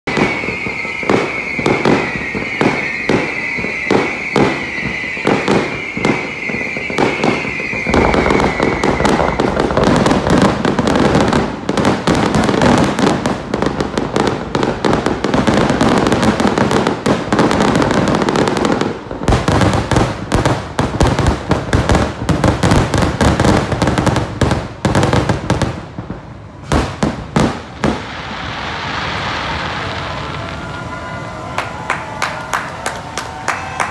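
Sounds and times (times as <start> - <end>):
fireworks bangs and crackles: 0.0 - 33.9
high whistle-like tone: 0.1 - 9.7.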